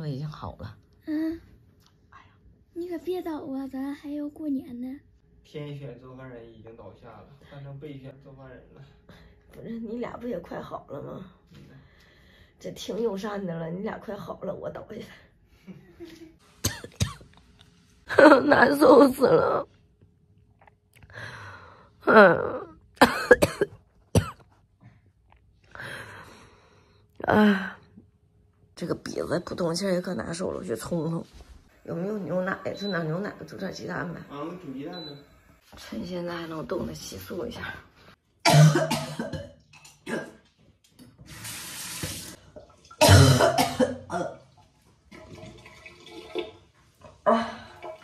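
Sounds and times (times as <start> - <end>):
woman coughing: 16.6 - 17.3, 23.0 - 24.5, 38.4 - 40.4, 43.0 - 44.4
woman moaning: 22.0 - 22.8
tap running into washbasin: 40.9 - 43.0.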